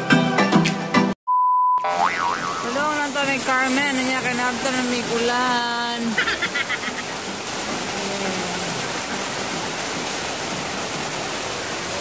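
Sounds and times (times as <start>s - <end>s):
heavy rain hissing: 2.7s - 12.0s.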